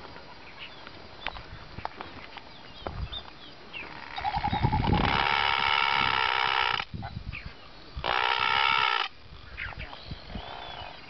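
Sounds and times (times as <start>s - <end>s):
loud steady animal call: 3.9s - 7.1s, 8.0s - 9.3s
faint bird chirps: 9.3s - 11.0s.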